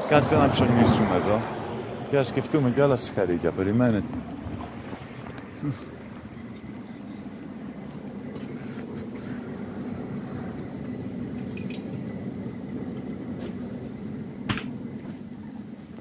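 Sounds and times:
low shop background hum: 0.0s - 16.0s
faint thin high tone: 9.8s - 12.1s.

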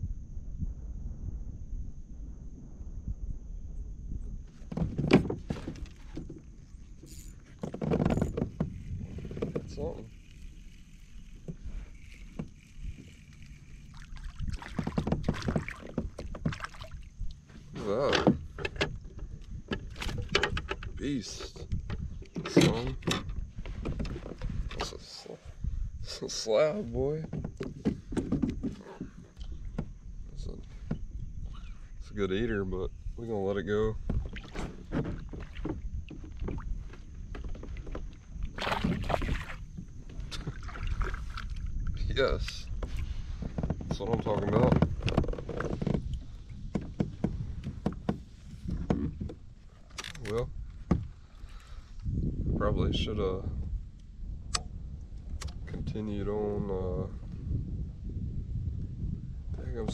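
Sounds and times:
low rumble of wind and water: 0.0s - 59.9s
fishing reel and gear clicking: 5.9s - 15.0s
water splashing: 9.0s - 17.2s, 38.5s - 39.7s, 40.4s - 41.8s.

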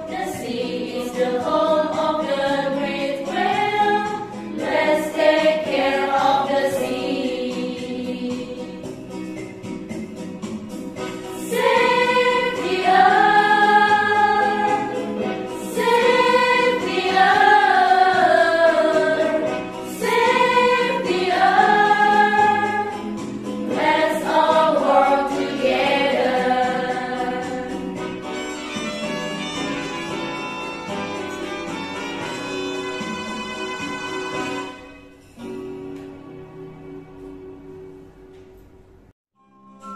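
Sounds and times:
choir singing: 0.0s - 9.0s, 11.4s - 28.0s
instrumental accompaniment: 0.0s - 39.9s.

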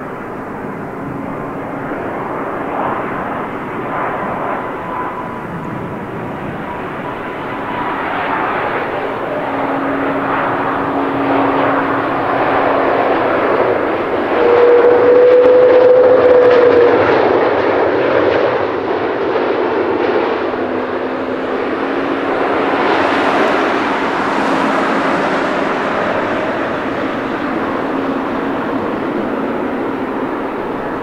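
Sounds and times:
jet engine whine: 0.0s - 31.0s
jet engines roaring: 0.0s - 31.0s.

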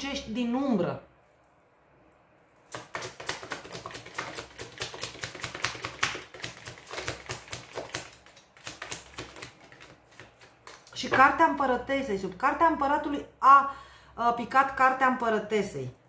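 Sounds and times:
cards being shuffled: 2.7s - 11.0s.

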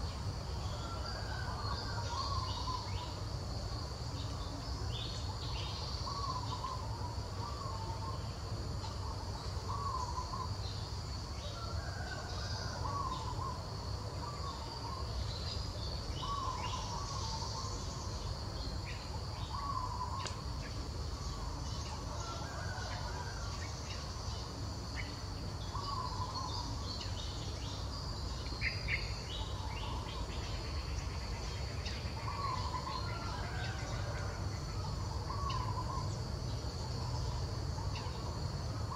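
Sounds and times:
insects droning: 0.0s - 38.9s
bird warbling call: 35.2s - 36.1s.

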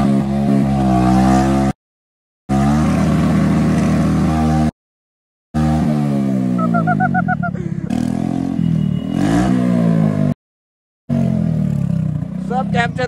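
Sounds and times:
scooter engine with loud exhaust: 2.5s - 4.7s, 5.6s - 10.4s, 11.1s - 13.0s
short high chirps: 6.6s - 7.6s.

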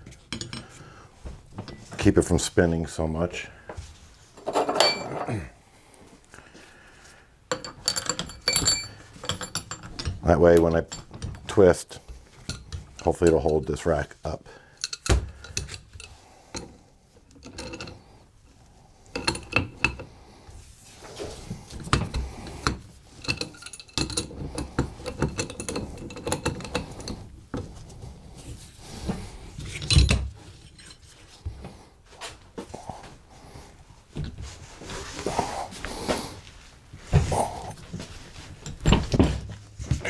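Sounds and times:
wrench clinking against metal: 7.5s - 11.5s, 23.2s - 27.2s.

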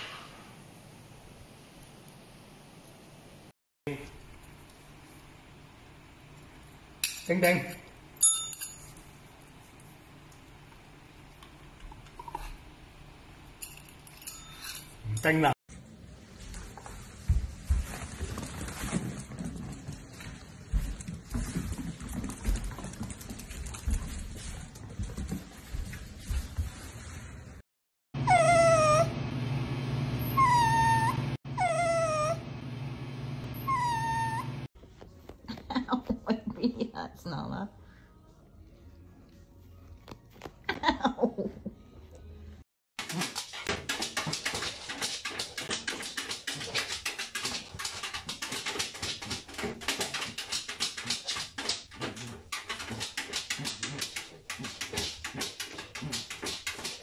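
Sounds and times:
dog whining: 28.2s - 29.2s, 30.2s - 32.4s, 33.5s - 34.6s.

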